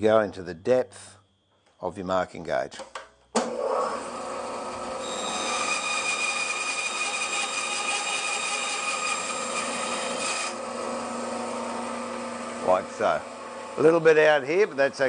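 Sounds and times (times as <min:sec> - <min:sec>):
bandsaw cutting wood: 0:03.4 - 0:14.0.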